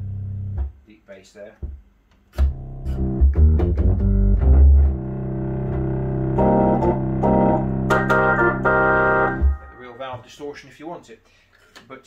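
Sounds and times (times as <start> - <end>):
organ chords through rotating speaker: 2.4 - 10.0.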